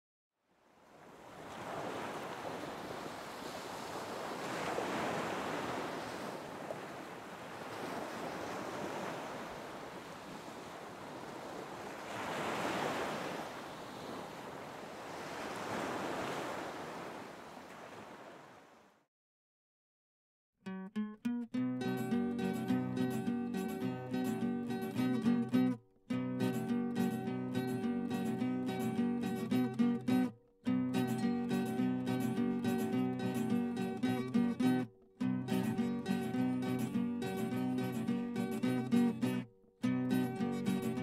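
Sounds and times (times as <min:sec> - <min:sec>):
ocean surf breaking on shore: 0:00.6 - 0:18.9.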